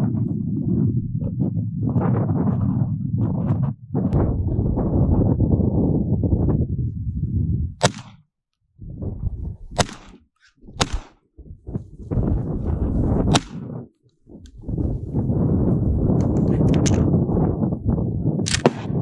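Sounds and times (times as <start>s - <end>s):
low rumbling noise: 0.0s - 7.8s, 8.8s - 9.8s, 10.6s - 19.0s
sharp gunshots: 7.8s - 8.2s, 9.8s - 10.2s, 10.8s - 11.2s, 13.2s - 13.8s, 18.5s - 19.0s.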